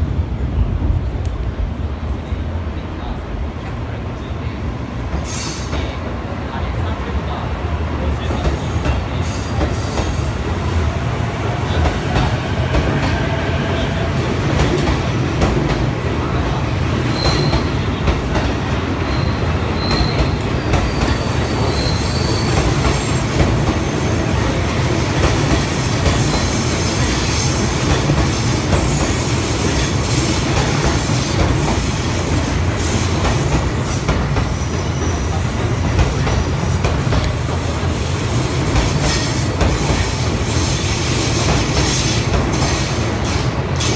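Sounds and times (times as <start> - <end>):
electric train rumbling past: 0.0 - 43.9.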